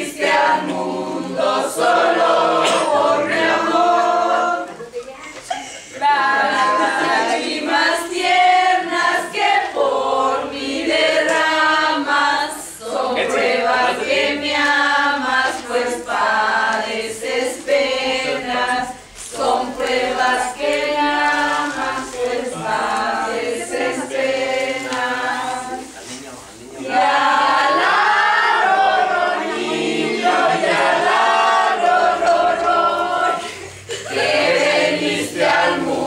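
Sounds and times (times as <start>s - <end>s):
group of people singing: 0.0s - 36.0s.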